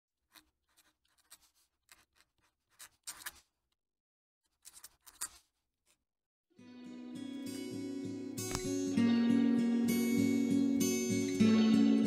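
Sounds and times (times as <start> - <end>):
pen nib scratching on paper: 0.2 - 3.6, 4.5 - 5.6.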